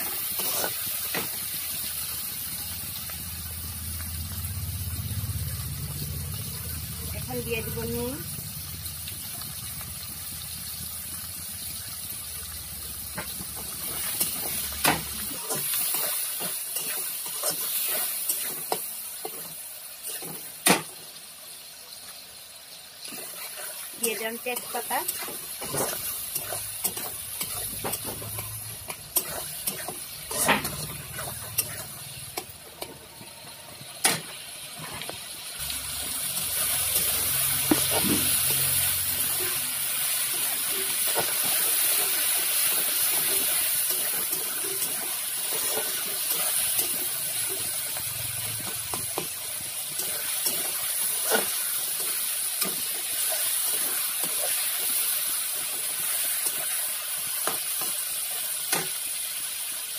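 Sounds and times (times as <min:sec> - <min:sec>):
spatula scraping pan: 0:00.0 - 0:01.3, 0:23.2 - 0:33.0
vegetables sizzling in hot oil: 0:00.0 - 0:59.9.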